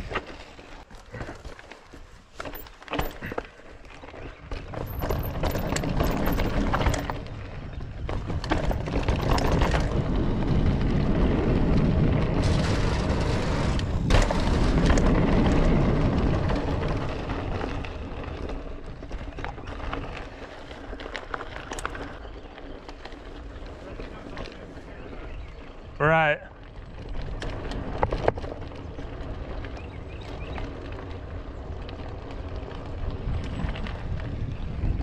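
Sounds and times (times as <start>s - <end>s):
bike clicks and knocks: 0.0s - 24.7s, 26.8s - 34.4s
tyres crunching on dirt and rock: 0.0s - 25.6s
wind rumbling on microphone: 0.0s - 35.0s.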